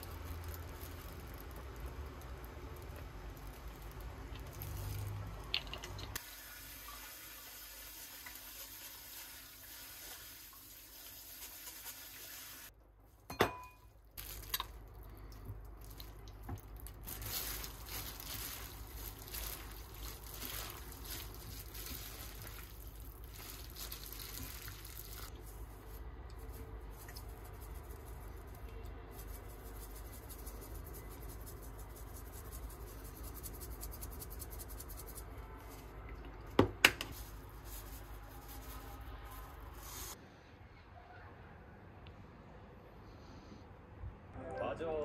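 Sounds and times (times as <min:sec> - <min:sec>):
food squelching and scraping: 0:00.0 - 0:06.2, 0:14.2 - 0:36.4, 0:37.1 - 0:40.2
water running in sink: 0:05.6 - 0:12.7.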